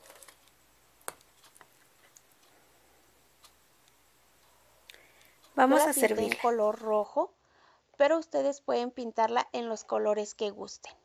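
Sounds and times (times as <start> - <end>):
faint ticks: 0.4 - 5.6.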